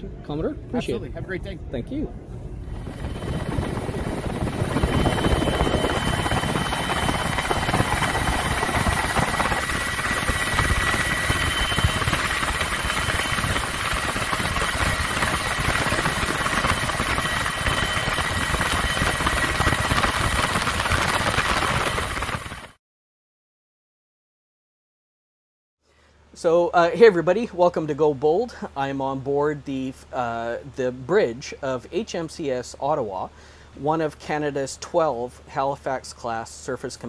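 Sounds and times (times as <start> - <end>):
aircraft cabin engine and airflow noise: 0.0 - 22.7
faint steady whines: 0.0 - 22.8.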